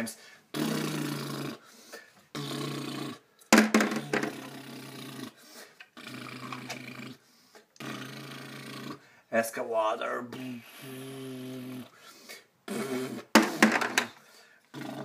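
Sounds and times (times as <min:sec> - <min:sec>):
person imitating engine growl: 0:00.5 - 0:01.6, 0:04.0 - 0:05.4, 0:07.8 - 0:09.0, 0:10.3 - 0:11.9.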